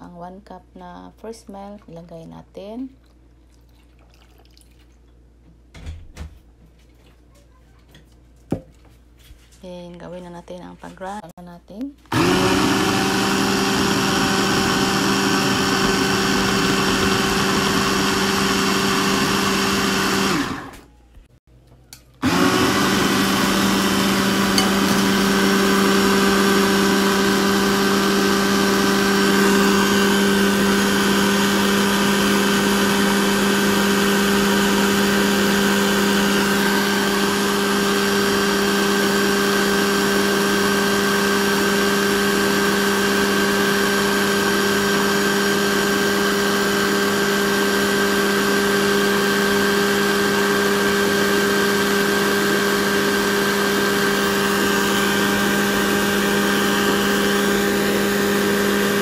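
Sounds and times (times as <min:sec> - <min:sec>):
electric blender motor: 0:12.1 - 0:20.9, 0:22.2 - 0:59.0.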